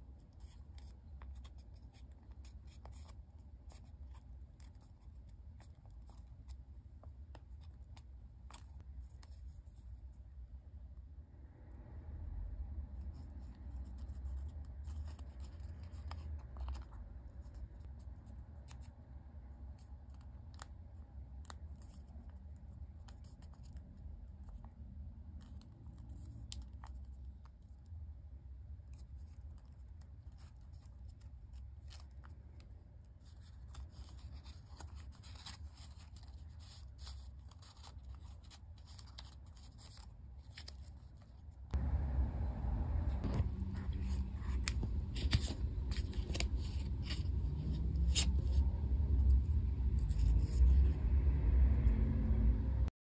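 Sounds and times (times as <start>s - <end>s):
low steady rumble: 0.0s - 52.9s
paper crinkling and ticking: 13.1s - 28.0s, 28.7s - 41.9s, 43.3s - 50.8s.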